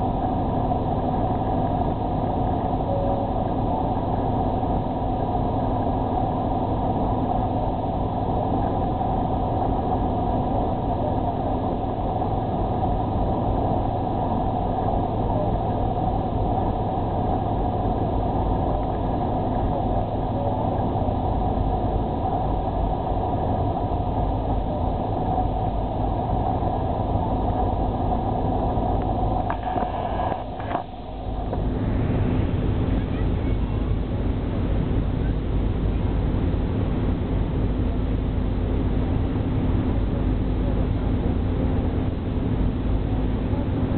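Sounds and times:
ferry engines droning: 0:00.0 - 0:43.9.

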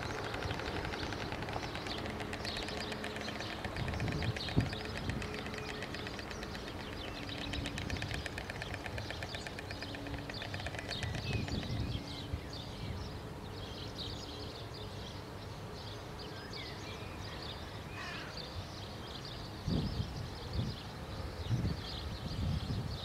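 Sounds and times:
storks clattering bills: 0:00.0 - 0:11.6
low background noise: 0:00.0 - 0:23.0
songbirds chirping: 0:00.0 - 0:23.0.

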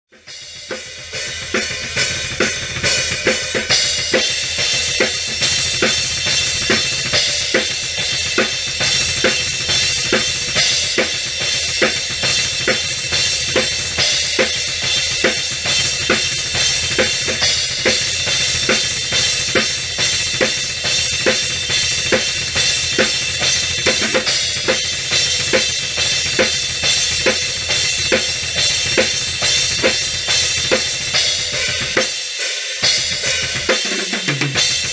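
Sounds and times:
drum kit groove: 0:00.1 - 0:34.9
fast bass drum strokes: 0:00.2 - 0:34.9.

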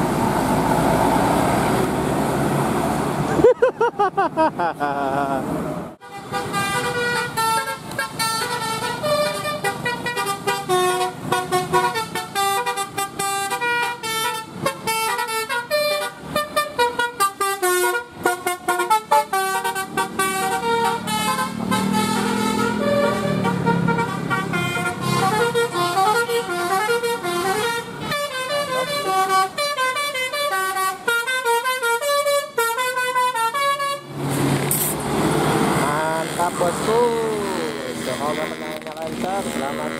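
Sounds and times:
multi-tone bus horn melody: 0:06.0 - 0:34.2
deeper horn tone: 0:16.5 - 0:34.1.

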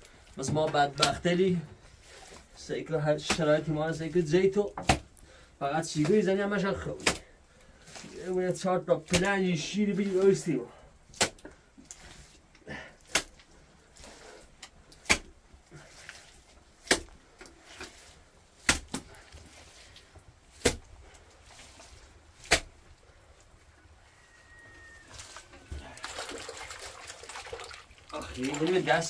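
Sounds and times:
water dripping indoors: 0:25.2 - 0:29.0.

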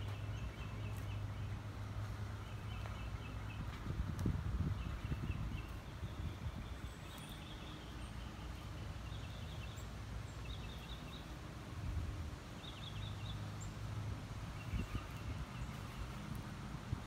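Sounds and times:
bird chirping: 0:00.0 - 0:01.7, 0:04.7 - 0:11.4, 0:12.6 - 0:13.8, 0:14.5 - 0:16.3.

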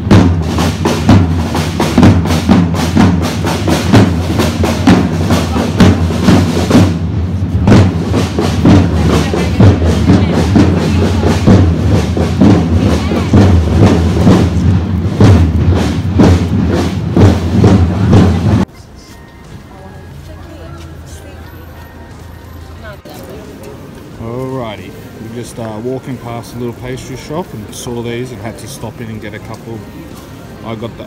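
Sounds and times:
marching drums beating: 0:00.0 - 0:18.7.

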